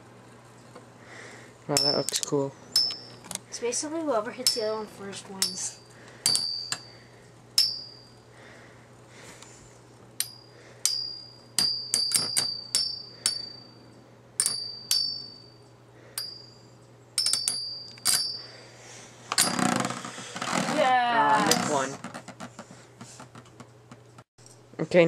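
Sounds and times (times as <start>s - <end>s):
spinning tops clashing metallic clinks: 17.2s - 18.4s.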